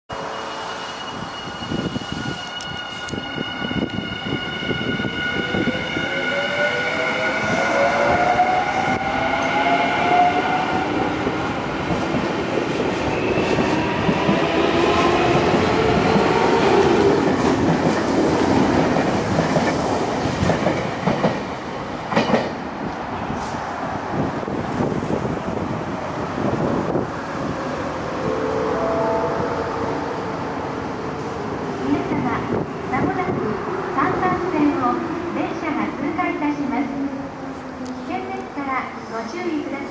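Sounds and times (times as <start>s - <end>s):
rail-joint clacks: 22.1s - 22.6s.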